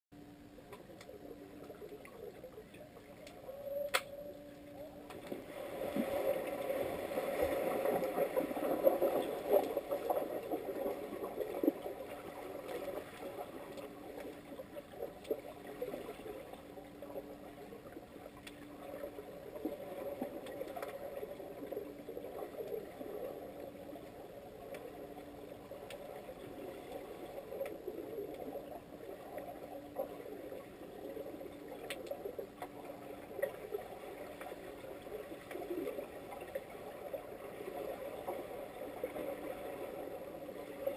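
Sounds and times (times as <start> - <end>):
faint low tone: 0.2 - 5.3
muffled underwater churning: 0.2 - 40.9.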